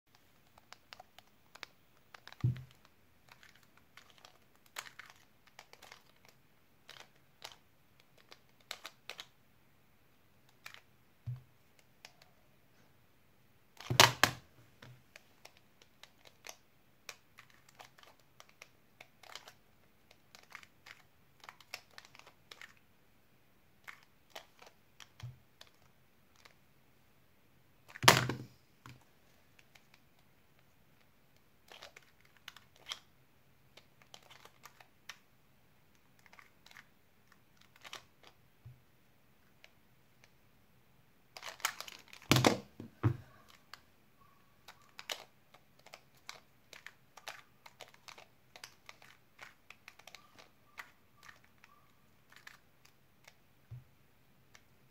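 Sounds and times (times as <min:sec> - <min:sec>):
puzzle cube clicking: 0:00.2 - 0:09.4, 0:10.4 - 0:12.3, 0:13.8 - 0:14.4, 0:15.1 - 0:22.8, 0:23.8 - 0:26.6, 0:27.9 - 0:29.0, 0:31.6 - 0:33.1, 0:33.8 - 0:35.2, 0:35.9 - 0:38.4, 0:41.4 - 0:43.8, 0:44.7 - 0:53.4.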